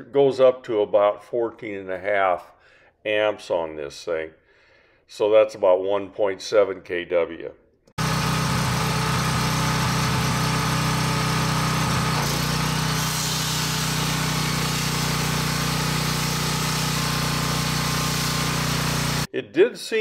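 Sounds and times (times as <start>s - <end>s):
generator engine running: 8.0s - 19.3s.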